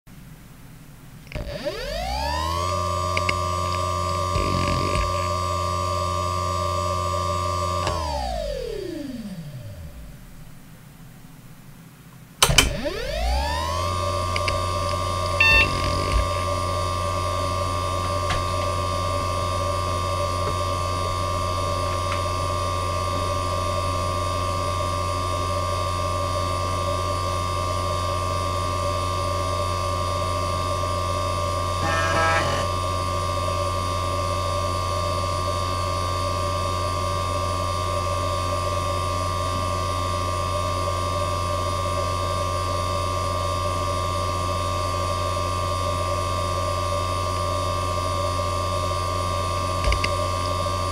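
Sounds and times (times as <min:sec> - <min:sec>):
hard drive spindle hum: 0:00.1 - 0:50.9
hard drive activity noise: 0:01.2 - 0:34.7, 0:46.0 - 0:50.9.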